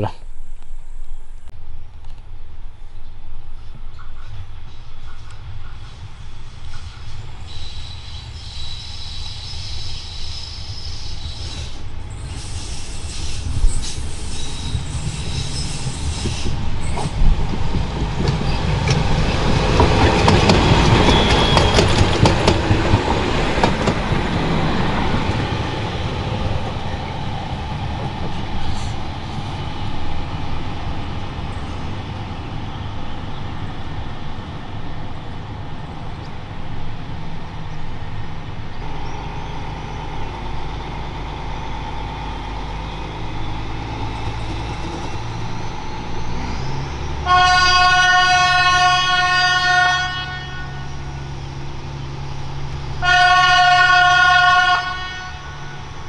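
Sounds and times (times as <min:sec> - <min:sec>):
wheel squeal: 0:07.4 - 0:17.1, 0:21.1 - 0:22.1
train wheels clattering over rail joints: 0:13.6 - 0:24.6.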